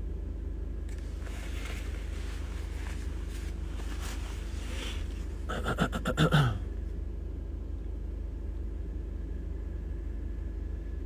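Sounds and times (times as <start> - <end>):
car cabin hum: 0.0 - 11.0
clothing rustling: 0.9 - 5.5.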